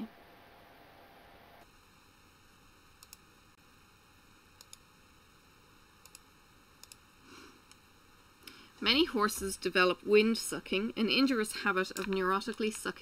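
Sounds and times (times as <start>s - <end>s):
faint room hiss: 0.0s - 13.0s
soft sharp clicks: 3.0s - 3.2s, 4.6s - 4.8s, 6.0s - 7.0s.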